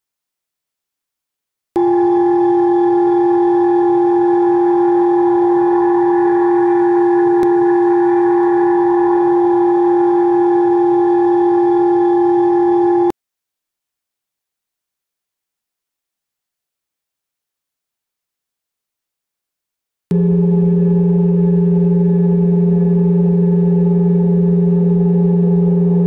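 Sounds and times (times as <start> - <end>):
steady two-pitch electronic tone: 1.8 - 13.2, 20.1 - 26.0.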